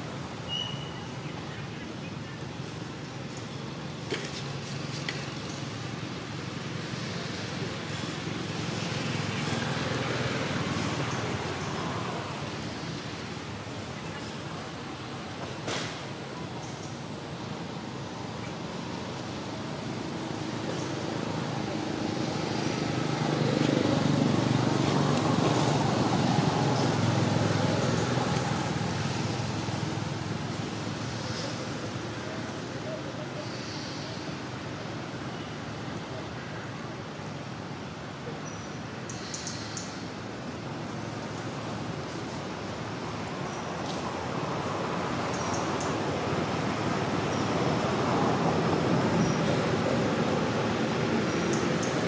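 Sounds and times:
outdoor background hiss: 0.0s - 52.0s
vehicle passing by: 19.8s - 32.0s.

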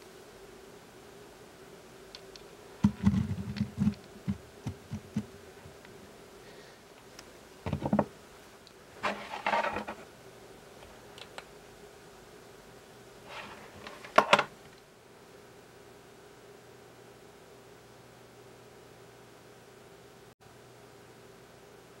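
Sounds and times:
faint steady hum: 0.0s - 22.0s
hollow plastic knocks: 2.8s - 5.3s
cable rustling clatter: 9.0s - 10.0s.

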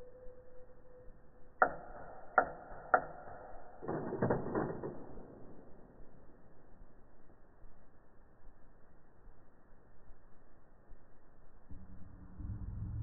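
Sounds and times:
faint steady tone: 0.0s - 3.7s.

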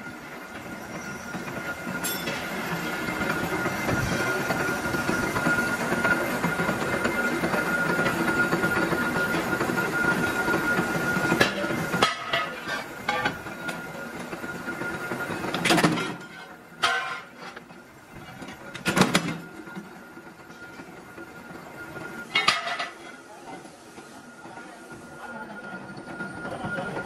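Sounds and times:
power press whine and clatter: 0.0s - 23.1s
sharp metal clanks: 2.0s - 2.5s.

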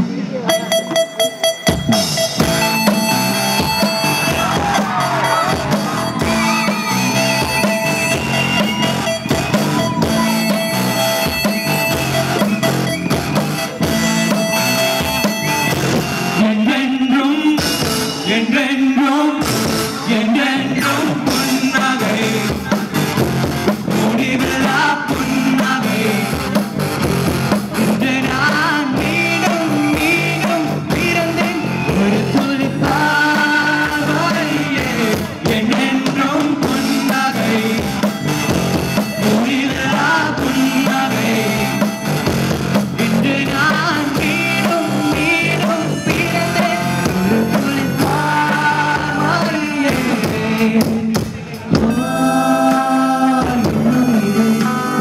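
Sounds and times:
rock band playing: 0.0s - 55.0s
man singing into microphone: 16.2s - 22.9s, 23.9s - 26.6s, 27.8s - 38.3s, 39.2s - 42.2s, 42.9s - 55.0s.

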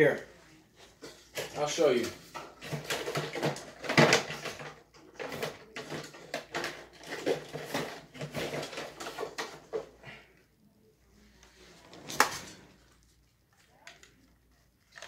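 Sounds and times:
things being handled rattling: 0.8s - 10.2s.

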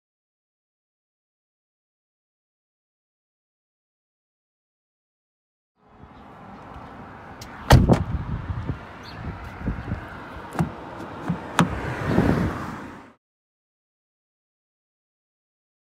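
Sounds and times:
car door slamming: 7.6s - 8.2s, 10.5s - 12.3s.

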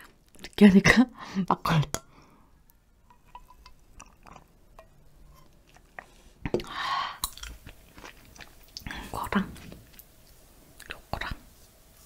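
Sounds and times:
sipping and swallowing: 3.3s - 4.5s.

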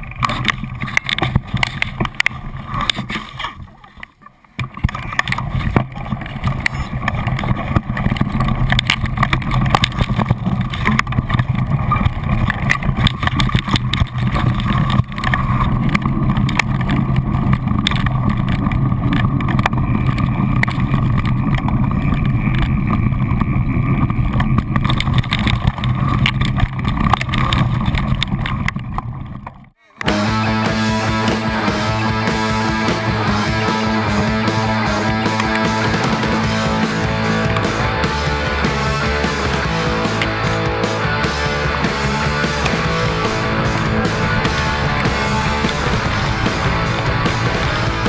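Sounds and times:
bike clicking and rattling: 0.0s - 30.4s, 31.0s - 48.0s
wind rumble on microphone: 4.7s - 29.5s.

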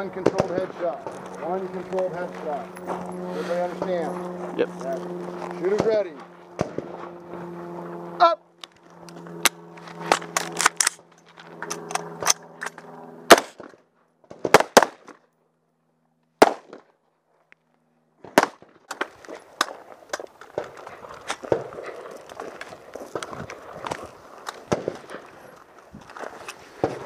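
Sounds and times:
carbine shots: 11.6s - 13.7s, 14.4s - 15.1s, 16.4s - 16.8s.

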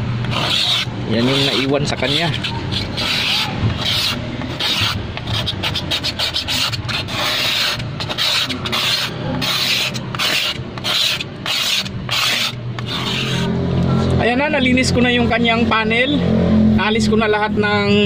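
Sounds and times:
scraper rasping on panel: 0.2s - 13.6s.

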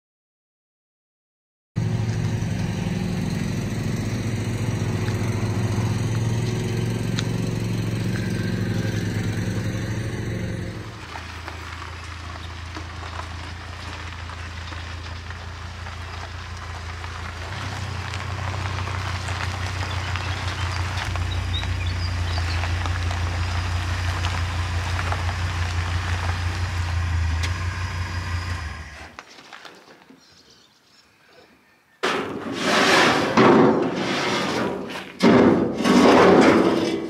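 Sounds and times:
quieter vehicle engine: 1.8s - 29.2s
vehicle engine deep hum: 1.8s - 29.2s.

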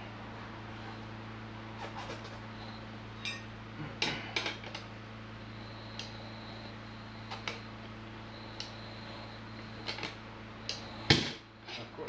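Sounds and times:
steady low hum: 0.0s - 12.0s
sharp metal clinks: 3.2s - 3.5s.

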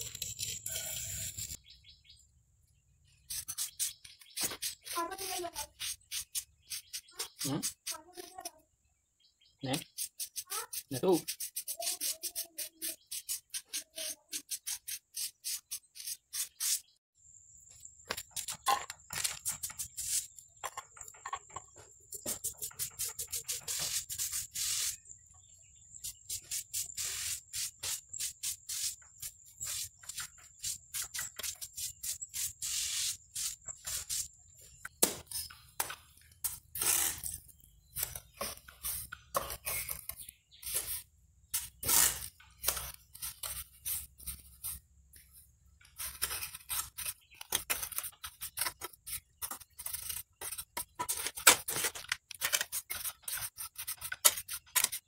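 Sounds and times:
brush and trowel scraping cement: 0.0s - 1.6s, 3.2s - 8.5s, 9.8s - 17.0s, 19.1s - 20.4s, 21.0s - 25.0s, 26.0s - 34.3s, 36.4s - 55.0s.

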